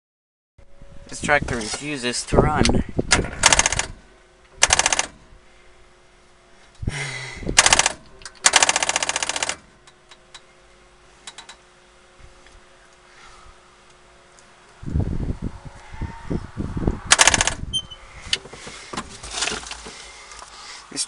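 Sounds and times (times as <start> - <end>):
tractor starter clicking: 2.6 - 4.0, 4.6 - 5.2, 7.6 - 10.4, 11.3 - 11.6, 17.1 - 17.6.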